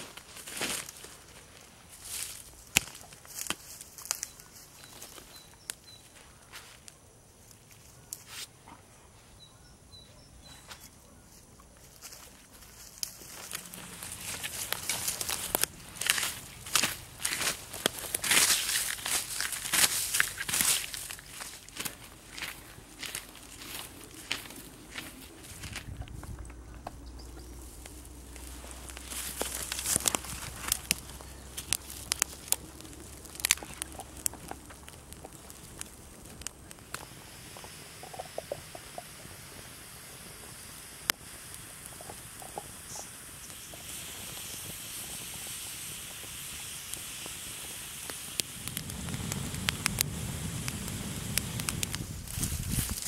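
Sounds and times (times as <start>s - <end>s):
footsteps in dry grass: 0.0s - 6.9s, 10.5s - 37.2s, 48.5s - 53.0s
fire crackling and popping: 0.0s - 8.4s, 11.7s - 53.0s.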